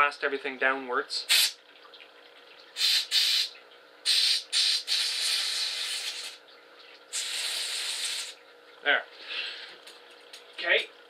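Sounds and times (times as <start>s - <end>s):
gas inflator hissing blasts: 2.8s - 3.5s, 4.1s - 6.4s, 7.1s - 8.4s.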